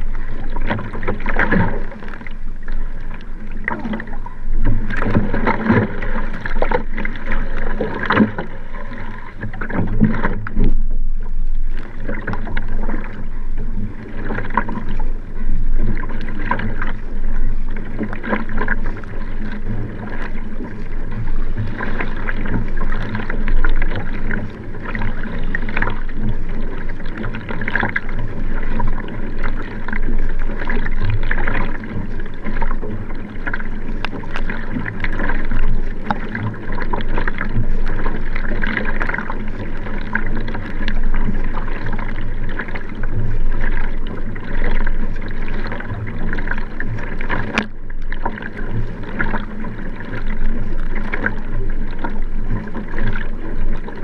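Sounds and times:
paddle blades splashing: 0.0s - 54.0s
water rushing along kayak hull: 0.0s - 54.0s.

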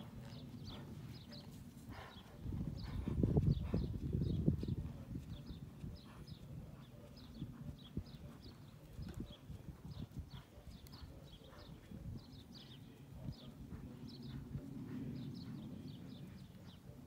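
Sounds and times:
horse hoofbeats on sand: 0.0s - 16.8s.

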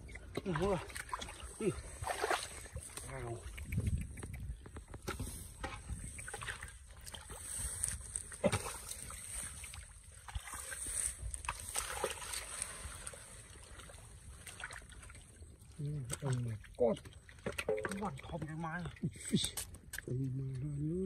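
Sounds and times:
hands squelching in wet mud: 0.0s - 18.3s
wet mud slaps and splashes: 0.4s - 7.3s, 8.2s - 10.7s, 11.3s - 12.8s.

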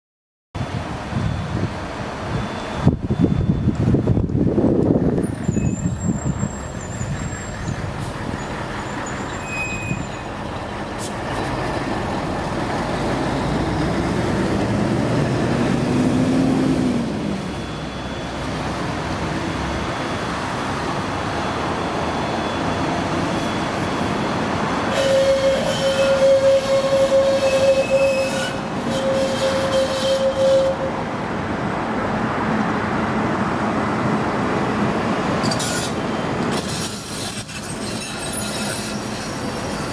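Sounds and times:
tram rumbling past on rails: 0.6s - 39.9s
high wheel squeal: 5.1s - 11.6s, 17.3s - 31.0s, 35.4s - 39.9s.

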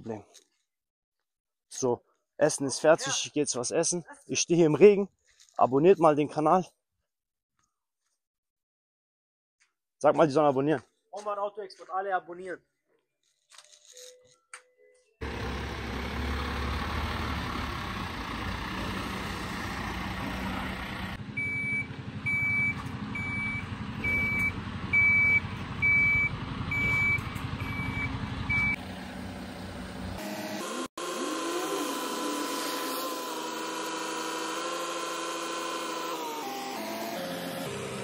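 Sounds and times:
tow truck engine running: 15.2s - 30.2s
crane hoist whine: 15.2s - 38.0s
warning beeps: 21.4s - 28.8s.

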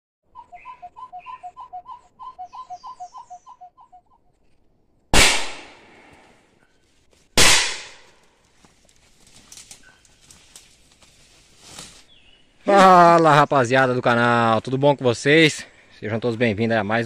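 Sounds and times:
gunshots echoing: 5.1s - 6.3s, 7.4s - 8.1s.

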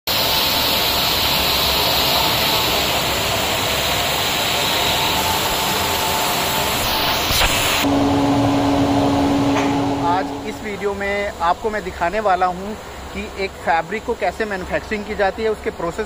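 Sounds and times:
quieter steady hum: 0.1s - 16.0s
faint whining tones: 0.9s - 13.1s.

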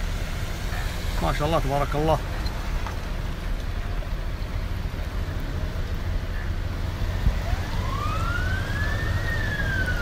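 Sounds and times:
police siren wailing: 7.2s - 10.0s.

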